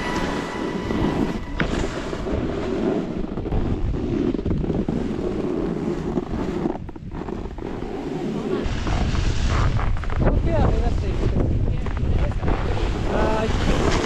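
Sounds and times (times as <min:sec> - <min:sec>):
snowboard scraping over snow: 0:00.0 - 0:14.0
wind buffeting microphone: 0:08.6 - 0:14.0.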